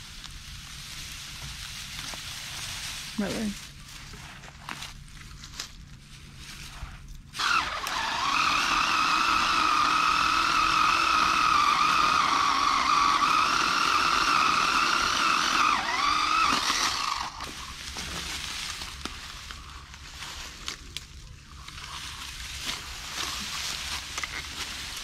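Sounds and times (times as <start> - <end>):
electric pole saw whining: 7.4 - 17.9.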